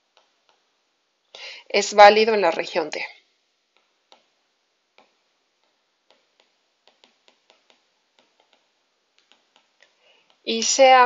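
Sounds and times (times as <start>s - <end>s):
stylus tapping on tablet screen: 0.0s - 0.7s, 3.7s - 10.8s.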